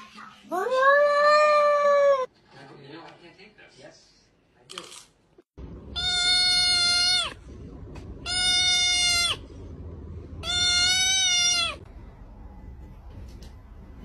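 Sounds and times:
kitten meowing: 0:06.0 - 0:07.4, 0:08.2 - 0:09.4, 0:10.4 - 0:11.8.

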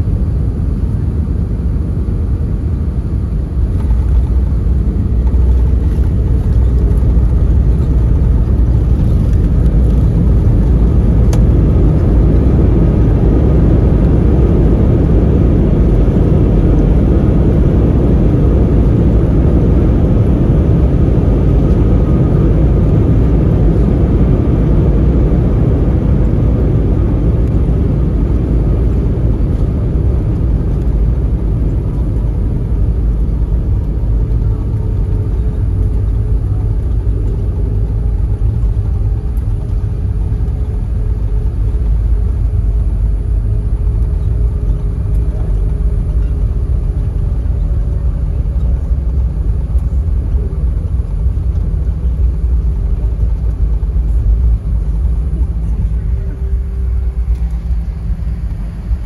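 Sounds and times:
jet engines roaring: 0:00.0 - 0:59.0
runway rumble: 0:00.0 - 0:59.0.

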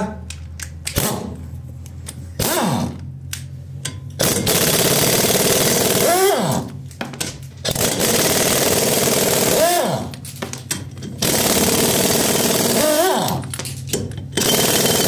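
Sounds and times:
impact wrench rattling: 0:03.8 - 0:15.0.

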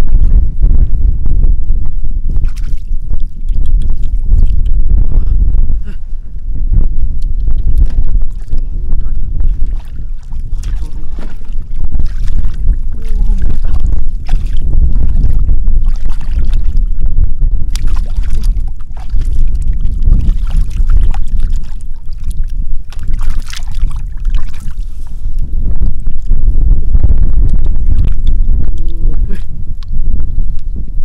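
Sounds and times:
wind rumble on microphone: 0:00.0 - 0:31.0
hands sloshing in muddy water: 0:09.4 - 0:16.9, 0:17.7 - 0:25.1.

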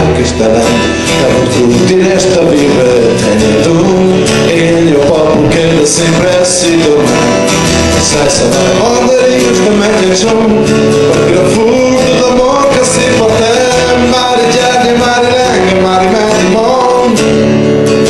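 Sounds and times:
man singing: 0:00.0 - 0:18.0
strummed acoustic guitar: 0:00.0 - 0:18.0.

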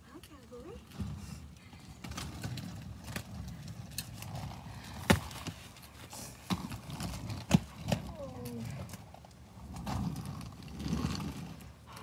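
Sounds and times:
roller skate wheels rumbling: 0:00.0 - 0:12.0.

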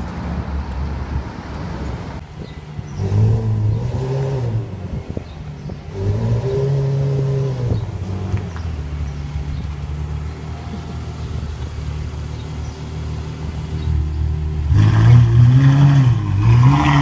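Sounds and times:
car engine revving: 0:02.2 - 0:17.0
engine idle rumble: 0:04.5 - 0:14.8.

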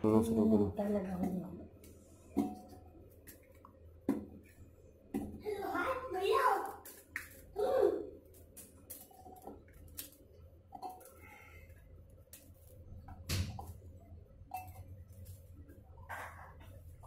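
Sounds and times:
low steady hum: 0:07.5 - 0:17.0
steel kitchenware clinking: 0:14.5 - 0:14.9.

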